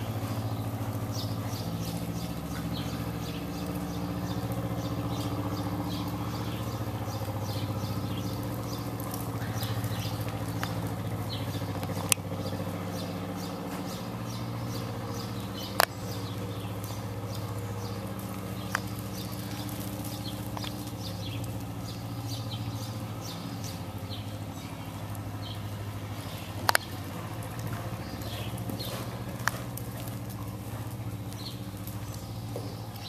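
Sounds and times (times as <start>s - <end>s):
horse hooves on sand: 0.0s - 33.0s
low mechanical hum: 0.0s - 33.0s
sharp clicks: 15.7s - 16.0s, 26.6s - 27.7s.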